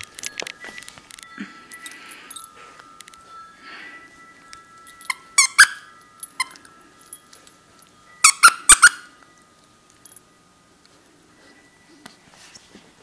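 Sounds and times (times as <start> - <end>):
plush toy squeaking: 5.4 - 5.8, 8.2 - 9.0.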